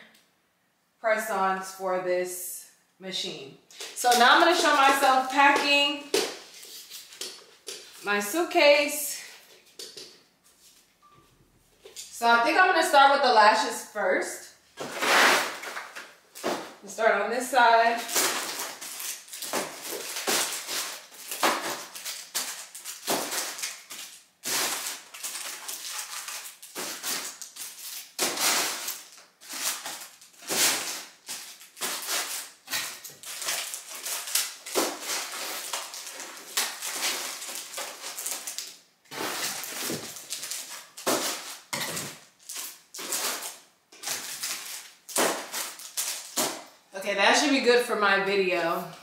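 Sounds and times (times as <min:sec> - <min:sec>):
plastic-wrapped boxes rustling: 0:03.8 - 0:08.0, 0:14.8 - 0:16.8, 0:17.6 - 0:46.7.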